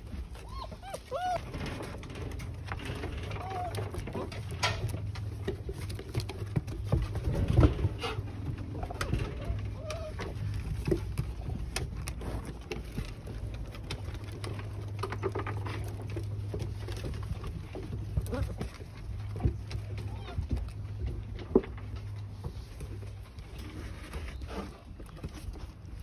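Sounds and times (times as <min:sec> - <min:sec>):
puppies low calls: 0:00.0 - 0:04.9, 0:07.6 - 0:14.4
paws clicking on wooden boards: 0:00.0 - 0:26.0.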